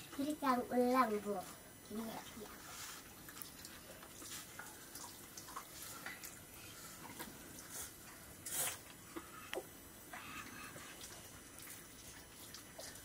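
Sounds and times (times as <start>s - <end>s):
short hiss: 8.4s - 8.9s.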